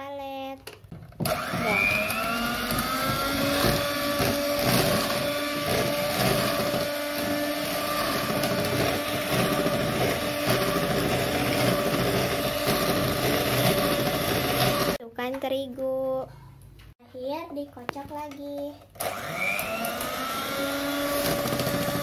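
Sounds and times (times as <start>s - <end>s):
electric hand mixer whirring: 1.2s - 15.0s, 19.0s - 22.0s.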